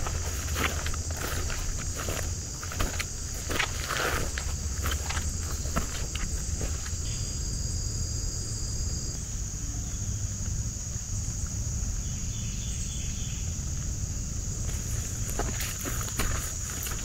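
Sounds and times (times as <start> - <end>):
high-pitched insect chorus: 0.0 - 17.0
lower insect buzz: 0.0 - 17.0.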